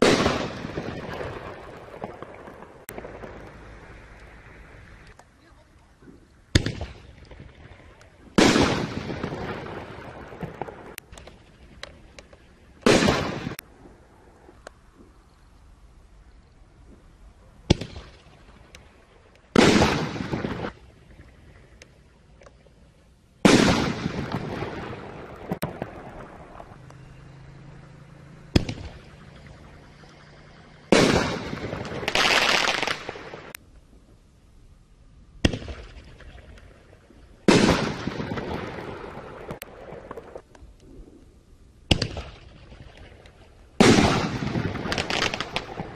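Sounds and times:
small firework cracks: 0:00.0 - 0:04.4, 0:05.0 - 0:13.6, 0:17.6 - 0:20.9, 0:23.4 - 0:27.0, 0:28.5 - 0:30.2, 0:30.9 - 0:33.6, 0:35.4 - 0:40.9, 0:41.9 - 0:45.9
firework shell booms: 0:23.4 - 0:26.0, 0:43.8 - 0:45.9.

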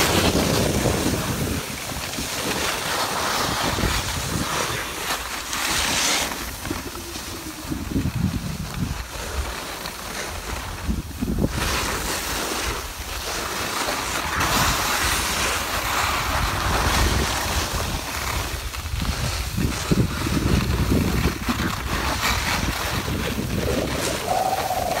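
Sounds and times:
wind buffeting microphone: 0:00.0 - 0:02.6, 0:06.5 - 0:09.6, 0:14.3 - 0:25.0
skis sliding on packed snow: 0:00.0 - 0:25.0.

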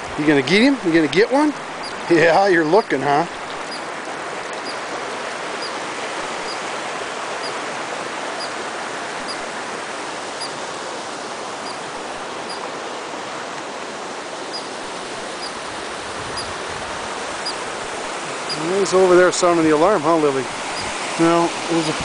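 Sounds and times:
stream water rushing: 0:00.0 - 0:22.0.

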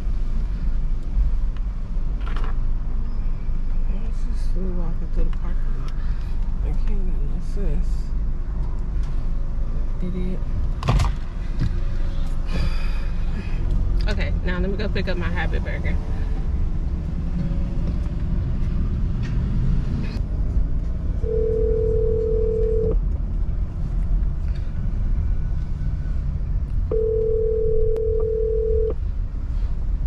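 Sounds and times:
telephone ringback tone: 0:21.2 - 0:23.0, 0:26.9 - 0:29.0.

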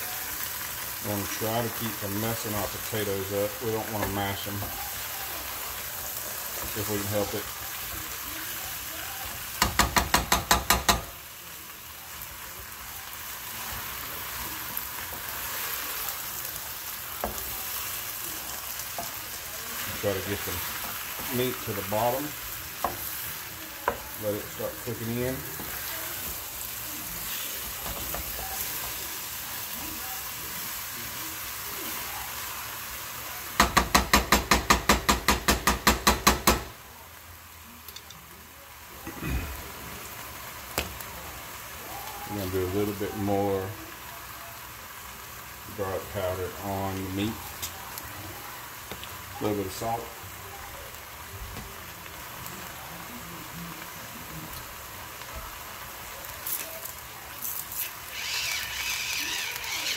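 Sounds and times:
meat frying in oil: 0:00.0 - 0:59.9
wooden spoon knocking on pot: 0:09.6 - 0:11.2, 0:33.6 - 0:36.7.

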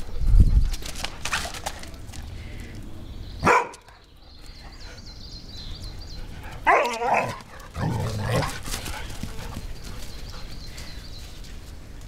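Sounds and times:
dogs barking: 0:03.4 - 0:04.0, 0:06.6 - 0:09.1.

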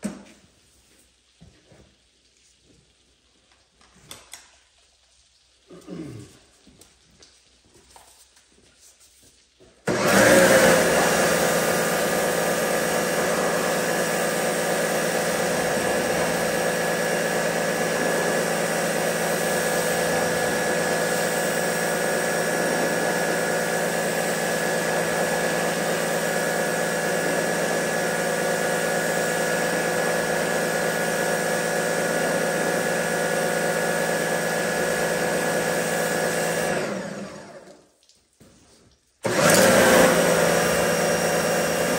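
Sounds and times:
water jet spraying on metal: 0:06.7 - 0:36.7
pressure washer motor whine: 0:09.8 - 0:37.8, 0:39.2 - 0:41.9.

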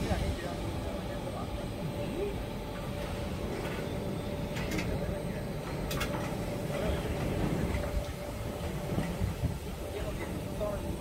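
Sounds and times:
grinding machine humming: 0:00.0 - 0:11.0.

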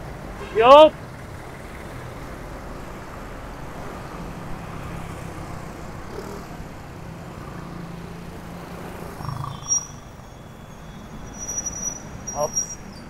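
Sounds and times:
city road traffic: 0:00.0 - 0:13.0
low vehicle engine hum: 0:00.0 - 0:13.0.

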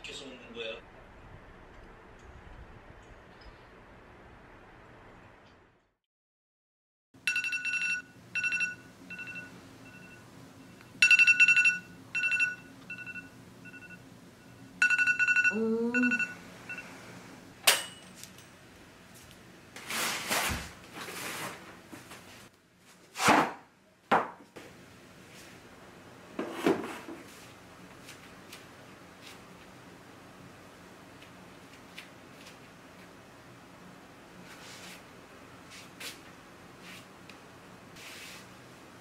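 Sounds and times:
phone alarm beeping tune: 0:07.3 - 0:17.0.

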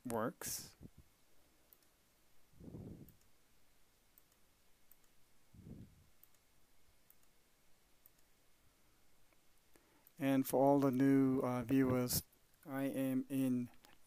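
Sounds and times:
computer mouse clicks: 0:01.7 - 0:02.0, 0:03.0 - 0:03.3, 0:04.2 - 0:05.2, 0:06.2 - 0:07.4, 0:08.0 - 0:08.3
soft low puffs: 0:02.6 - 0:03.2, 0:05.5 - 0:06.1.

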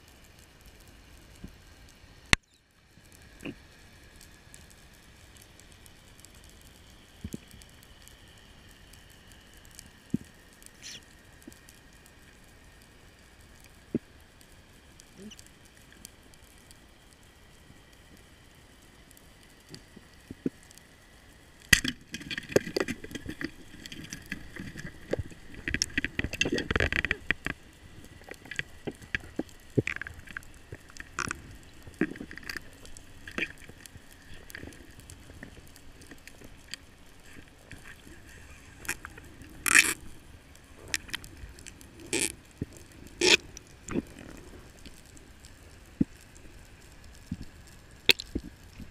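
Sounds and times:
underwater noise: 0:00.1 - 0:48.9
diving gear clicks and knocks: 0:21.8 - 0:32.7.

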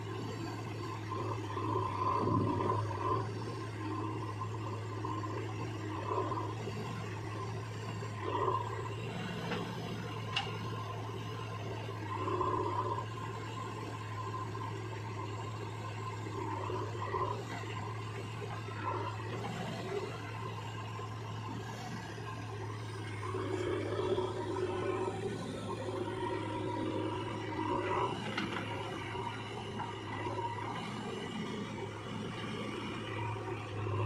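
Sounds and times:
diesel engine humming: 0:00.0 - 0:34.0.

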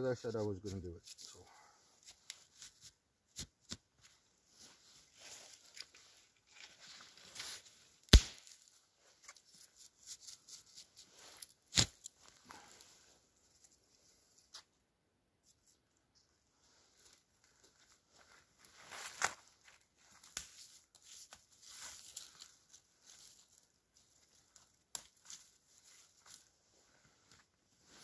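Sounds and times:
twigs rustling: 0:00.7 - 0:14.7, 0:16.6 - 0:28.0
dry branches cracking and snapping: 0:08.0 - 0:09.4, 0:11.4 - 0:12.7, 0:19.0 - 0:26.5
crunching in snow: 0:18.2 - 0:20.1.

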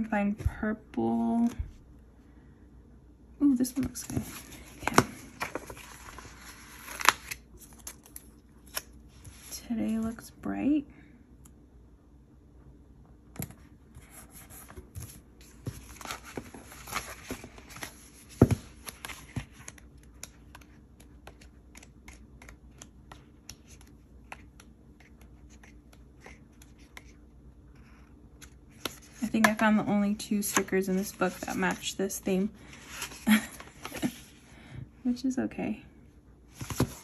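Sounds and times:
paper pages rustling: 0:03.8 - 0:09.5, 0:14.1 - 0:27.2, 0:30.4 - 0:32.0, 0:36.5 - 0:37.0.

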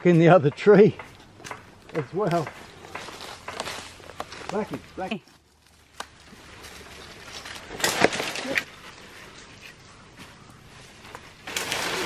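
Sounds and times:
tree trunk cracking and snapping: 0:05.6 - 0:08.8, 0:11.4 - 0:12.0
tree crashing down through branches: 0:07.3 - 0:08.7, 0:11.4 - 0:12.0.

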